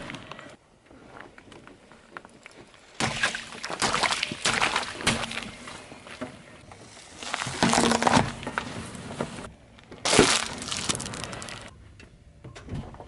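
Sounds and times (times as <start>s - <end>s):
car tyre crushing small objects: 6.8s - 9.1s, 9.7s - 11.7s
sharp crack: 10.0s - 11.7s.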